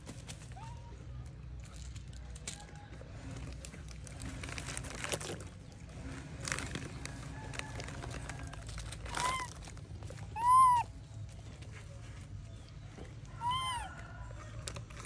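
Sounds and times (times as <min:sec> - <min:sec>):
plastic wrapper crinkling: 0:03.8 - 0:05.6, 0:06.4 - 0:10.3
baby monkey squealing: 0:09.1 - 0:09.6, 0:10.2 - 0:10.9, 0:13.4 - 0:14.0.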